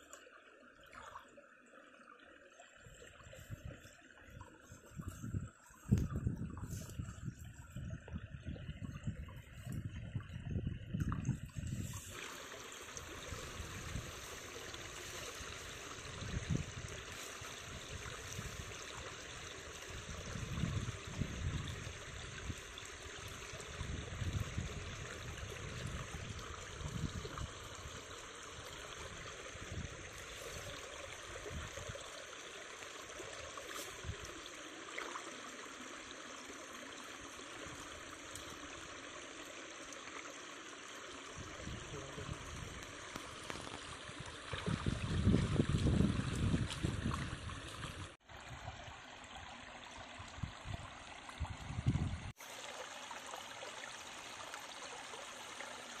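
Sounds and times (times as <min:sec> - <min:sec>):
water trickling: 0:00.0 - 0:56.0
wind rumble on microphone: 0:03.1 - 0:12.2, 0:13.1 - 0:14.4, 0:15.2 - 0:32.1, 0:41.3 - 0:48.9, 0:50.2 - 0:52.4.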